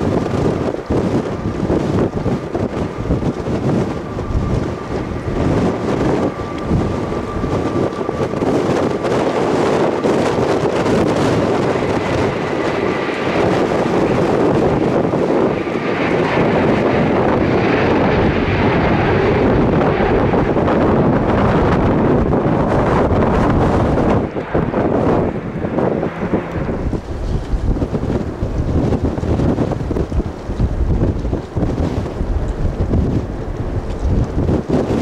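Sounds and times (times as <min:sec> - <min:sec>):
jet engine whine: 0:00.0 - 0:35.0
wind buffeting microphone: 0:00.0 - 0:35.0.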